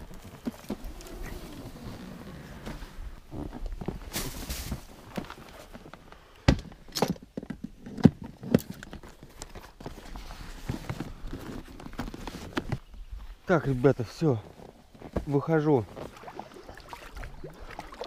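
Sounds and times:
rustling: 0.0s - 6.3s, 8.7s - 16.2s.

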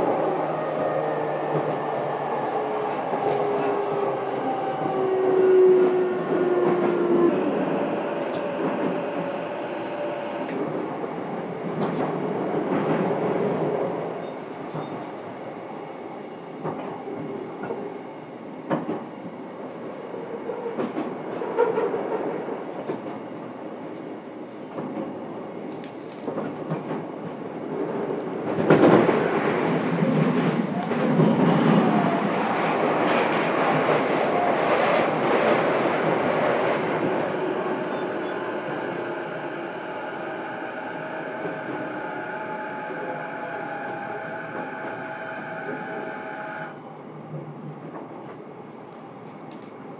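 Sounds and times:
rail joint clicks: 24.7s - 42.6s, 47.3s - 49.8s.

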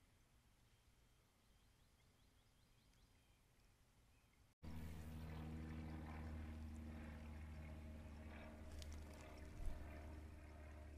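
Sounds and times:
low mechanical hum: 4.6s - 10.9s.

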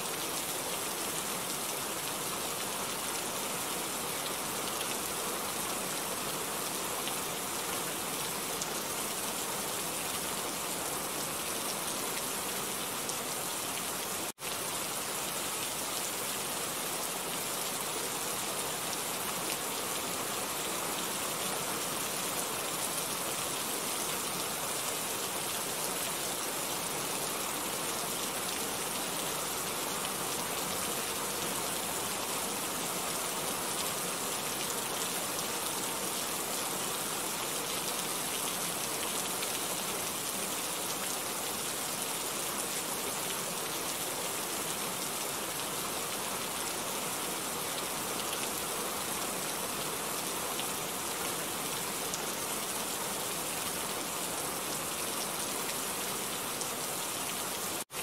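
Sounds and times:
steady rain falling: 0.0s - 58.0s.

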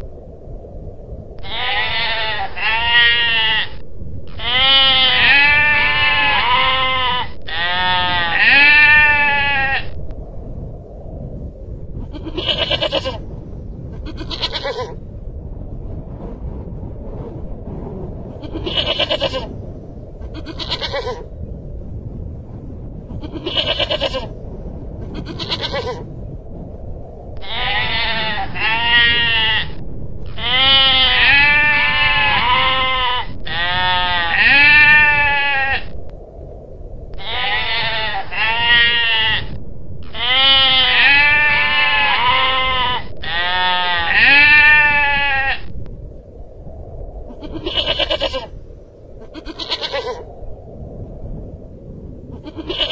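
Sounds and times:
goral bleating: 1.4s - 10.0s, 12.1s - 13.2s, 14.0s - 15.0s, 18.4s - 19.5s, 20.3s - 21.3s, 23.2s - 24.3s, 25.1s - 26.1s, 27.4s - 36.0s, 37.2s - 45.7s, 47.3s - 48.5s, 49.3s - 50.3s, 52.4s - 52.9s.

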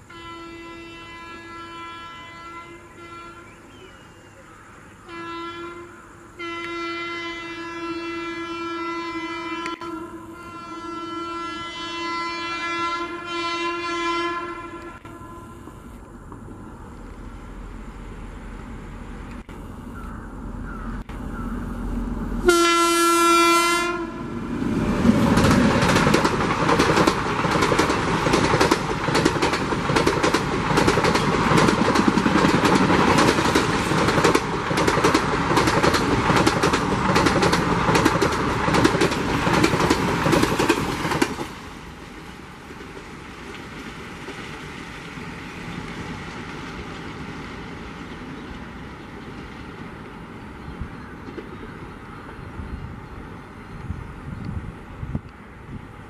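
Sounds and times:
rumble of train going away: 0.0s - 56.0s
locomotive horn blast: 0.1s - 3.7s, 5.0s - 16.0s, 22.3s - 24.6s
train wheels clattering on track: 24.9s - 52.4s.

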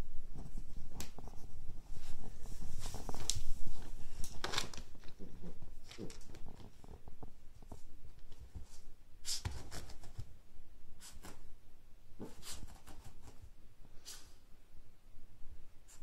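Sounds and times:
puppy scuffling with a frisbee: 0.7s - 10.0s.

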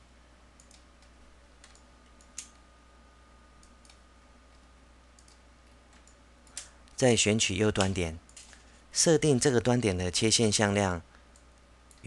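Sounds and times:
low steady hum: 0.0s - 12.0s
computer mouse clicks: 0.6s - 2.6s, 3.6s - 6.7s.

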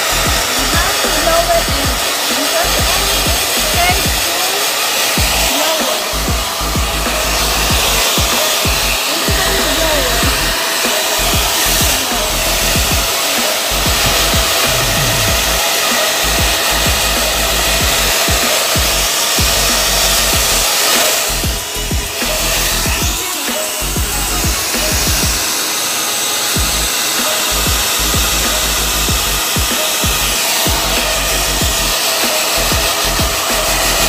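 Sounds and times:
hair dryer blowing: 0.0s - 34.0s
low rumbling: 6.1s - 10.6s, 13.7s - 15.6s.

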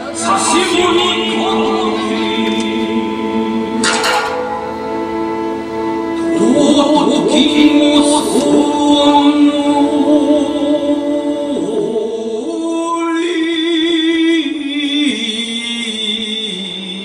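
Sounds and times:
sustained instrumental tones: 3.2s - 7.9s.

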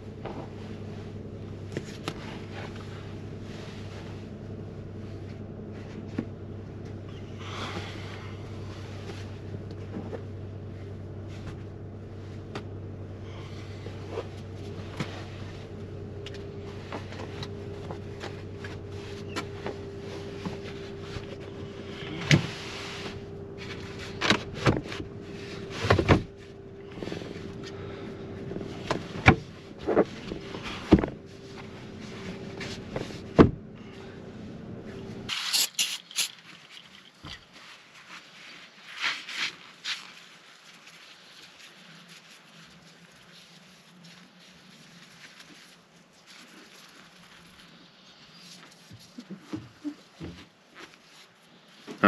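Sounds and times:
steady low hum: 0.0s - 35.3s.

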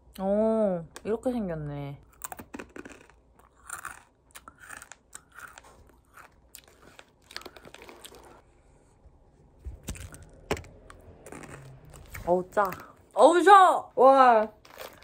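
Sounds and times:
chips crunching while chewed: 2.0s - 8.4s, 9.8s - 12.9s, 14.5s - 15.0s.

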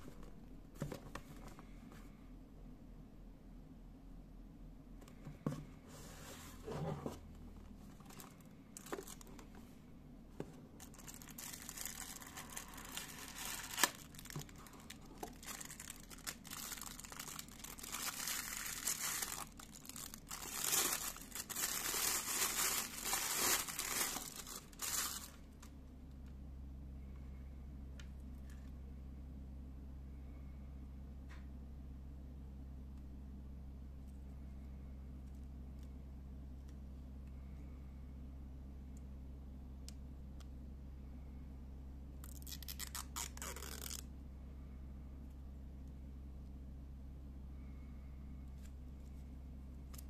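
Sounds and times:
plastic bag crinkling: 8.0s - 9.4s, 10.8s - 25.4s, 42.3s - 44.0s.

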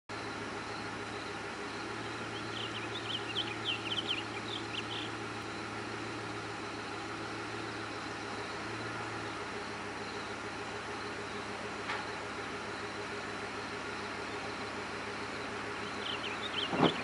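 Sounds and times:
high chirping bird calls: 1.9s - 5.7s, 15.5s - 17.0s.

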